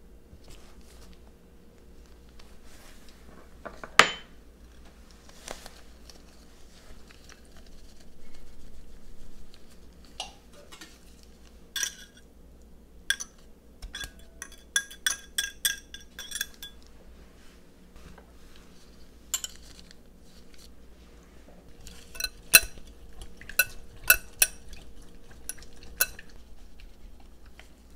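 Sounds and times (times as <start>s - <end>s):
soft rustle: 2.0s - 3.3s, 4.8s - 10.2s, 17.0s - 22.1s
utensils clinking on glass bowls: 11.8s - 12.2s, 13.1s - 16.9s, 19.4s - 19.7s, 21.8s - 26.4s.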